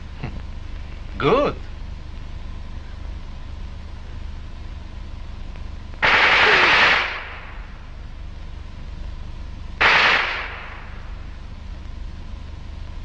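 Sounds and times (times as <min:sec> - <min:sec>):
gunshots: 0:06.0 - 0:07.8, 0:09.8 - 0:11.1.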